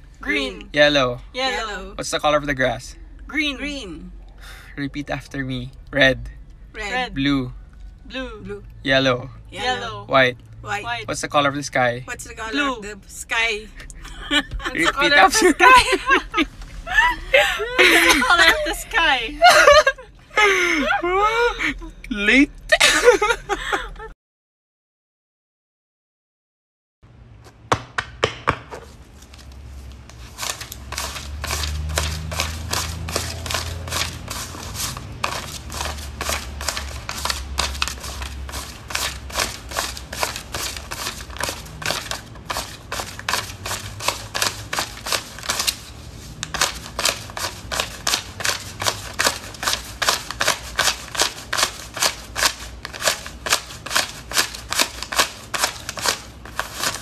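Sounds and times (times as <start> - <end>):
low steady hum: 2.6 - 24.1.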